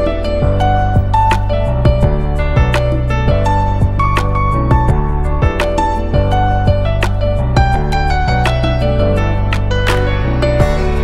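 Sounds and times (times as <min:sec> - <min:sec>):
instrumental background music: 0:00.0 - 0:11.0.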